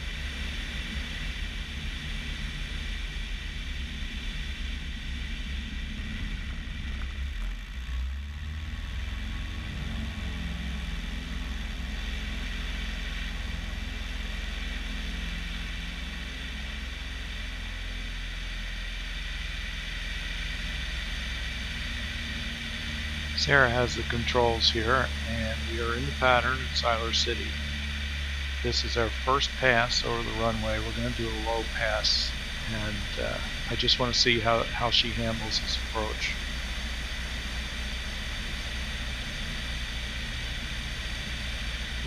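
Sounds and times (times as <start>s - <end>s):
light aircraft engine and propeller: 0.0s - 42.0s.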